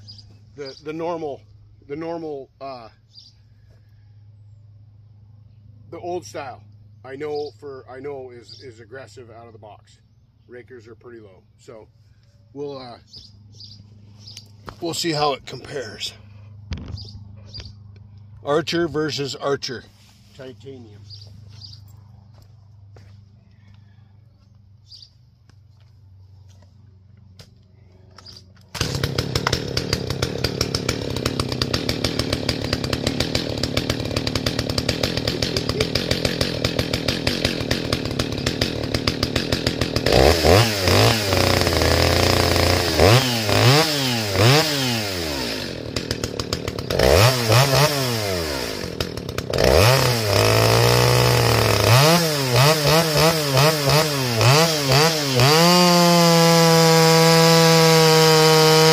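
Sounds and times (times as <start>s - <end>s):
chainsaw idling and revving: 28.2s - 58.9s.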